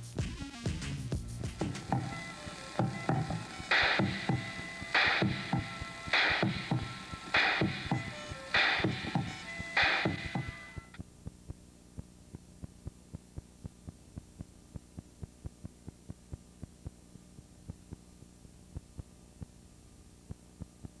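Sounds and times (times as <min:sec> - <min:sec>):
music: 0:00.0 - 0:11.0
faint electrical mains hum: 0:00.0 - 0:21.0.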